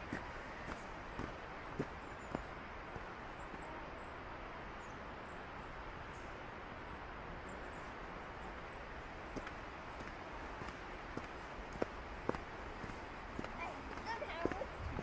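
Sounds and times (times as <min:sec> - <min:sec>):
footsteps on packed snow: 0:00.0 - 0:03.7, 0:09.2 - 0:15.0
steady outdoor hiss: 0:00.0 - 0:15.0.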